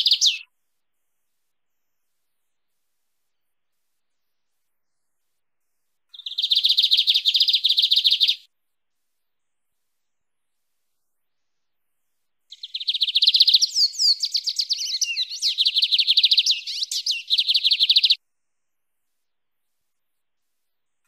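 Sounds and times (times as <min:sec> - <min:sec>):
bird trilling song: 0:00.0 - 0:00.5, 0:06.1 - 0:08.5, 0:12.5 - 0:18.2.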